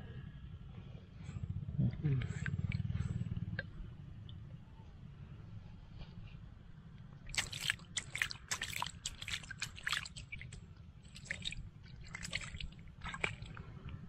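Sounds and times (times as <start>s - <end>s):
water splashing and squelching: 7.2s - 14.0s.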